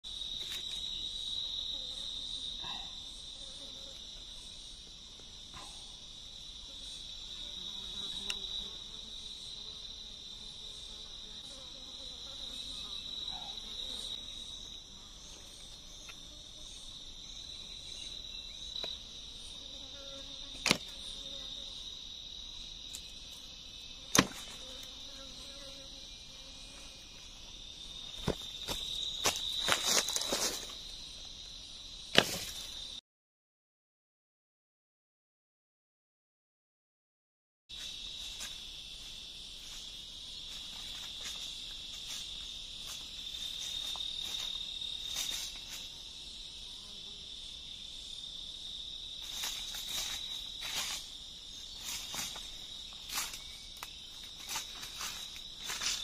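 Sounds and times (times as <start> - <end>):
insect chorus drone: 0.0 - 33.0, 37.7 - 56.0
faint rapid insect pulsing: 0.1 - 33.0, 37.7 - 56.0
wooden knocks of bamboo stakes: 20.6 - 21.0, 24.1 - 24.6, 32.1 - 32.6.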